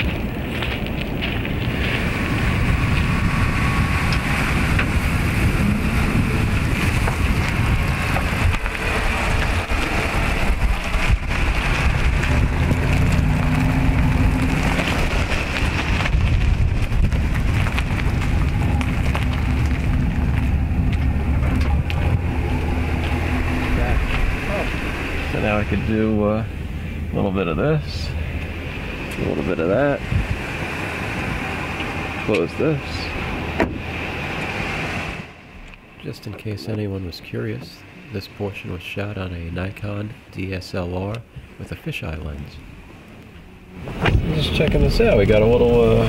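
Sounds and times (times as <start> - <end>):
wind on microphone: 0.0 - 35.3
engine low rumble: 0.0 - 46.0.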